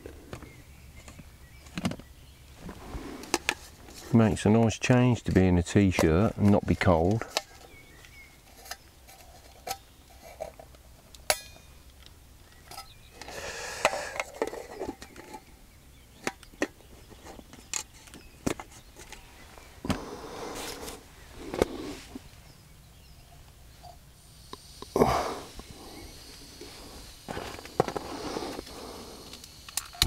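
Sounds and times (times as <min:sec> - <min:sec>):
rustling and scraping: 0:00.0 - 0:11.2, 0:12.5 - 0:15.6, 0:16.8 - 0:22.5, 0:25.4 - 0:30.0.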